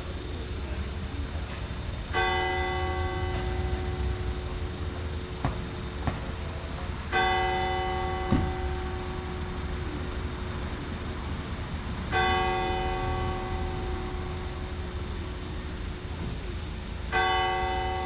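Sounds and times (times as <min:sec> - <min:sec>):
church bell tolling: 0:01.4 - 0:18.0.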